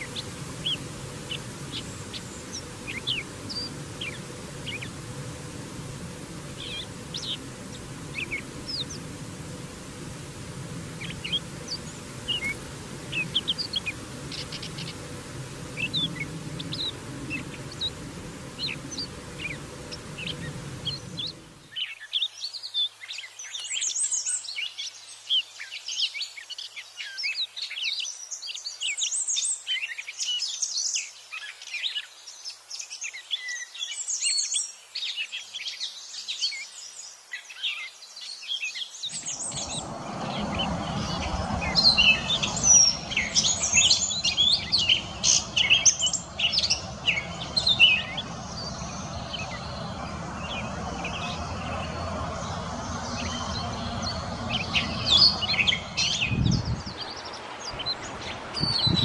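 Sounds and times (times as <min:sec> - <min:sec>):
background hiss and hum: 0:00.0 - 0:21.9, 0:38.9 - 0:59.0
bird singing varied phrases: 0:00.0 - 0:22.7.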